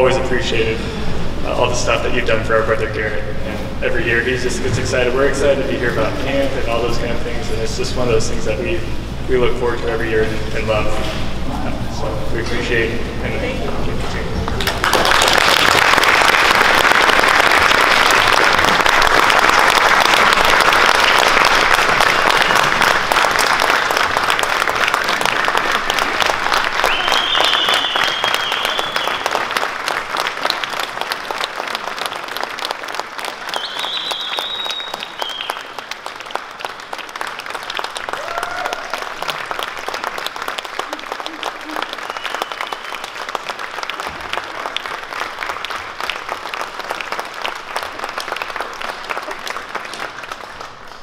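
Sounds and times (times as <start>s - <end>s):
audience applauding: 14.4s - 51.0s.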